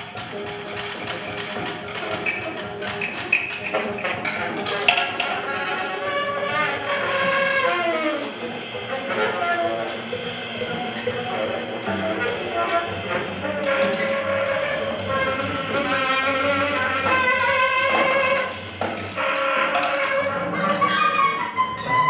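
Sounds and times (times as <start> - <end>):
double bass: 0.0 - 22.0
drums and cymbals: 0.0 - 22.0
saxophone long notes: 5.3 - 20.7.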